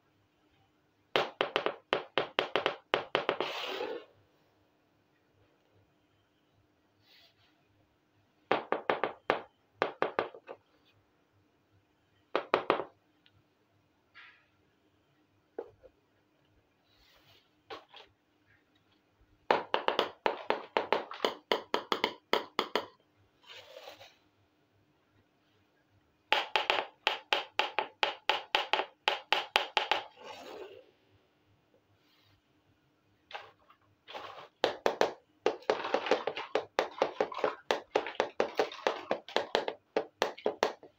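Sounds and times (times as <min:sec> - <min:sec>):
toy saucepan scraping across board: 0:03.4 - 0:04.1, 0:30.1 - 0:30.8, 0:33.4 - 0:34.6
plastic toy knocking on board: 0:34.6 - 0:40.9.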